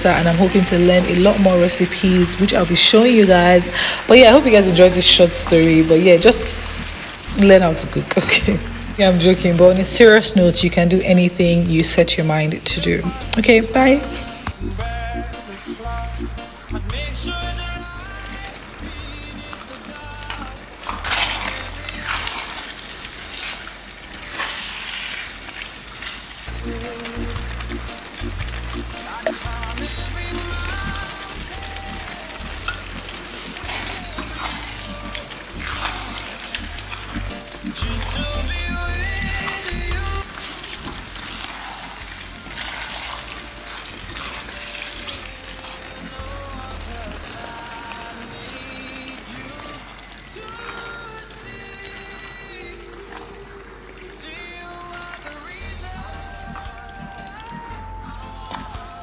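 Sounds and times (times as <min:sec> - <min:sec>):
background music: 0:00.0 - 0:25.2, 0:26.4 - 0:59.0
food sizzling in a frying pan: 0:00.0 - 0:52.9
spatula stirring in pan: 0:13.1 - 0:53.0.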